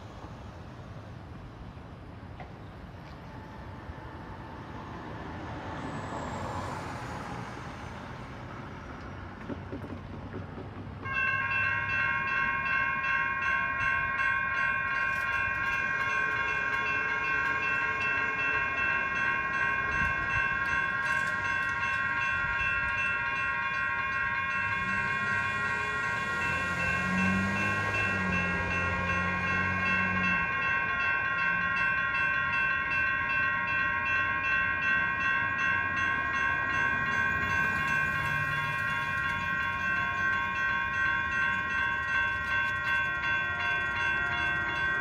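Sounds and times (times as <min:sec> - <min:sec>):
railroad crossing bells ringing: 0:00.0 - 0:45.0
street traffic passing: 0:00.0 - 0:45.0
low train horn: 0:24.6 - 0:30.8, 0:43.1 - 0:45.0.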